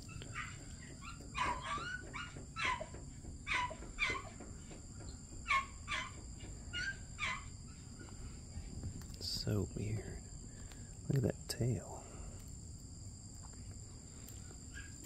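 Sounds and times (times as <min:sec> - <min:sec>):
coatimundi chirping: 0:00.0 - 0:08.7, 0:14.3 - 0:15.0.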